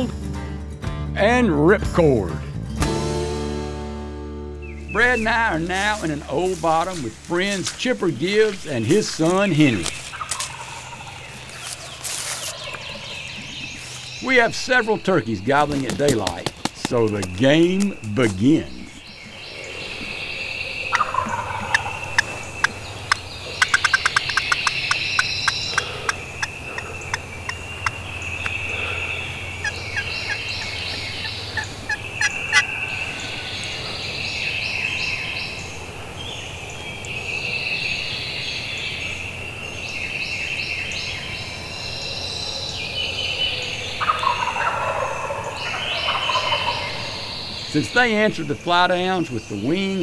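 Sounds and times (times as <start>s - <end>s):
turkeys gobbling: 4.9s - 35.8s, 42.7s - 48.7s
turkey wing slaps: 15.7s - 17.9s.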